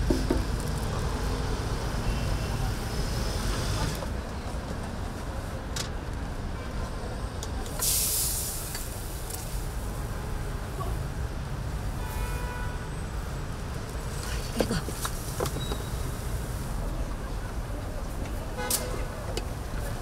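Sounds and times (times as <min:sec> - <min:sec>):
road traffic rumbling: 0:00.0 - 0:20.0
loud hiss: 0:07.8 - 0:09.4.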